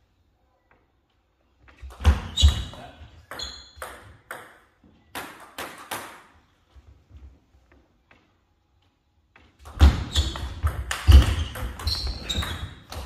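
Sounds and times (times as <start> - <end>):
shoe squeak: 2.1 - 3.8, 9.9 - 13.0.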